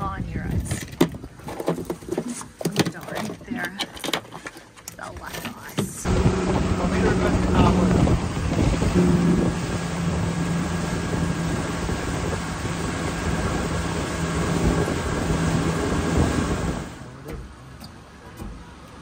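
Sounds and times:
outboard motor hum: 0.4s - 19.0s
wind buffeting microphone: 6.0s - 17.1s
wake water rushing: 6.0s - 19.0s.

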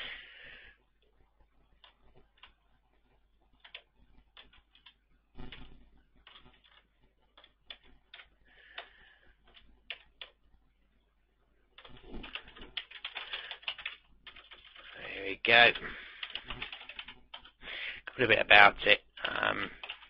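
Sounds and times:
keyboard typing: 1.7s - 10.4s, 11.8s - 15.0s, 15.6s - 17.6s, 19.2s - 20.0s.

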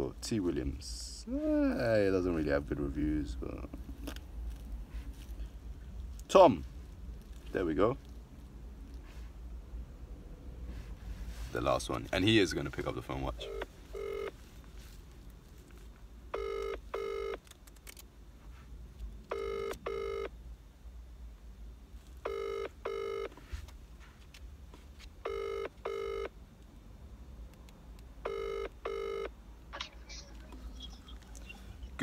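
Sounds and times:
phone ringback tone: 13.4s - 14.3s, 16.4s - 17.4s, 19.3s - 20.3s, 22.3s - 23.3s, 25.2s - 26.3s, 28.3s - 29.3s.

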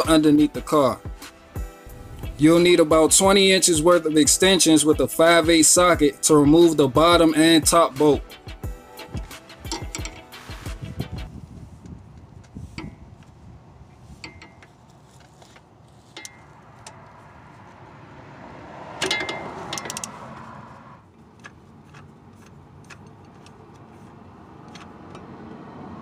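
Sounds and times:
ratchet wrench clicking: 9.2s - 10.3s, 19.0s - 20.2s, 21.3s - 25.6s
metal clinks: 9.6s - 10.3s, 19.0s - 20.2s.

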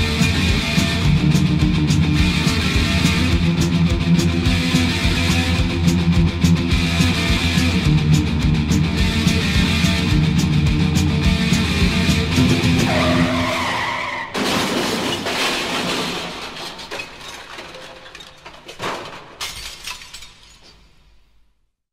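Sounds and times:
sharp hits: 0.0s - 16.7s
loud crash: 11.8s - 19.9s.

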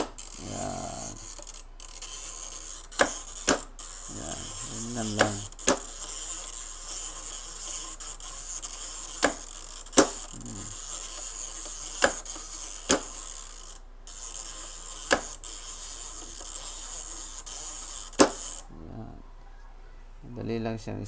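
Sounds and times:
steady hiss: 0.0s - 18.9s
timer switch plastic clicks: 2.9s - 3.8s, 4.8s - 5.9s, 18.2s - 18.5s.

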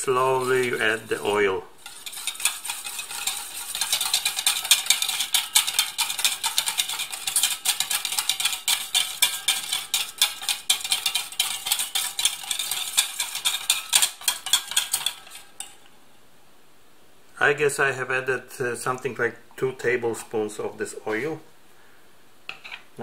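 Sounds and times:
whisk clicking against metal bowl: 0.0s - 15.8s.

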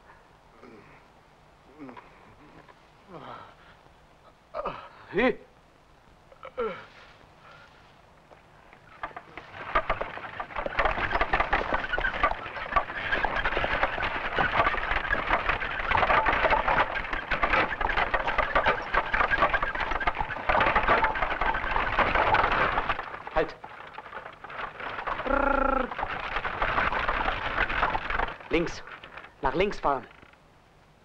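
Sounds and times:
cart wheels clattering on stony ground: 7.5s - 30.4s.

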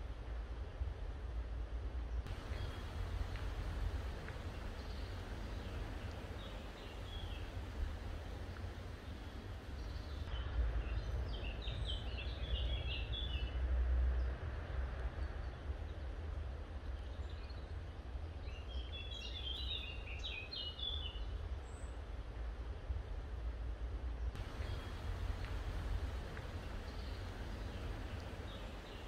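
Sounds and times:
steady low rumble: 2.0s - 11.8s, 24.3s - 29.0s
bird chirping song: 2.3s - 13.6s, 17.0s - 21.9s, 24.4s - 29.0s.

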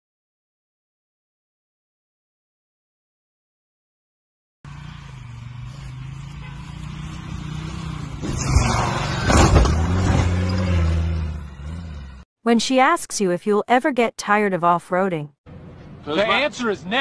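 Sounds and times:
wheels spinning on grass: 4.7s - 10.6s
engine revving under load: 4.7s - 12.3s.

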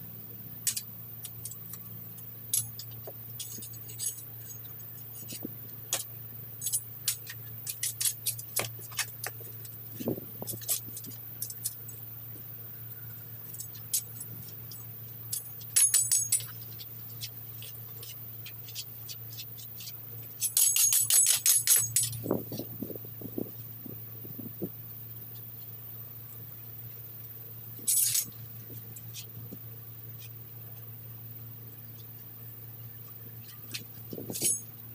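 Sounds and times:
steady low hum: 0.0s - 34.9s
metal tool scraping brick pavers: 2.6s - 9.3s, 17.6s - 22.6s, 27.8s - 28.3s, 33.4s - 34.7s.

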